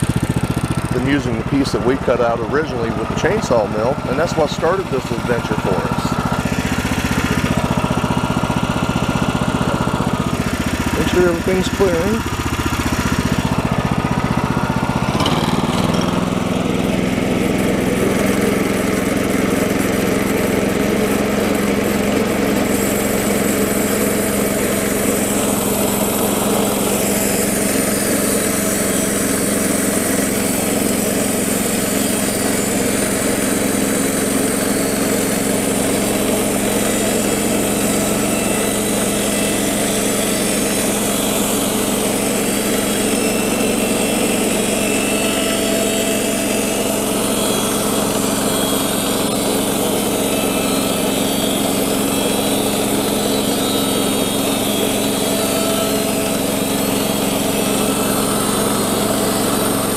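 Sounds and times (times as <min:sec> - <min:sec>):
band saw blade cutting wood: 0:00.0 - 0:59.9
gas engine running under load: 0:00.0 - 0:59.9.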